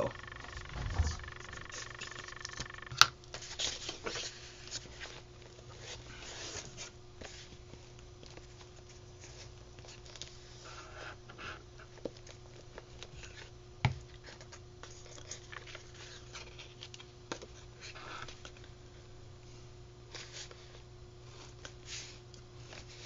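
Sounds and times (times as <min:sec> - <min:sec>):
low steady hum: 0:00.0 - 0:03.4.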